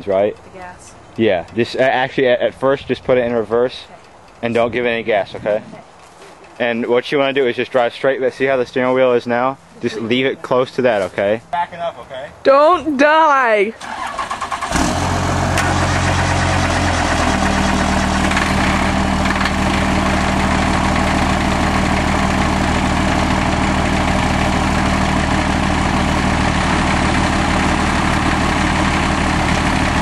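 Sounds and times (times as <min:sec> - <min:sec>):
diesel tractor engine under load: 0:13.8 - 0:30.0.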